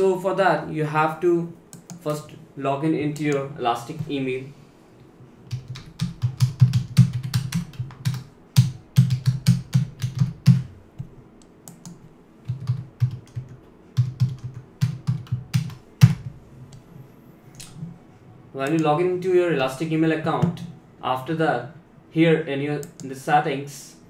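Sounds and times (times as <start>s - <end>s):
typing on computer keyboard: 5.5s - 10.7s, 11.6s - 16.2s.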